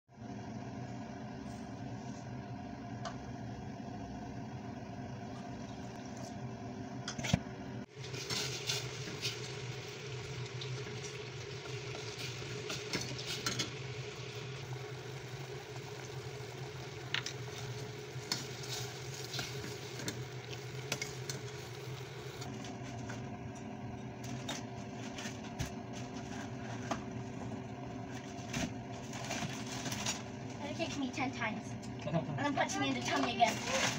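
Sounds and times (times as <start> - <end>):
low steady hum: 0.2 - 33.9
sugar syrup bubbling: 4.9 - 6.7, 7.9 - 22.5.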